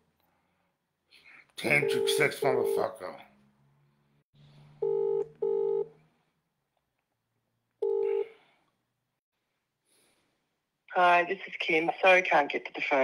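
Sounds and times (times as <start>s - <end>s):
telephone ringback tone: 1.8s - 2.3s, 4.8s - 5.9s, 7.8s - 8.3s.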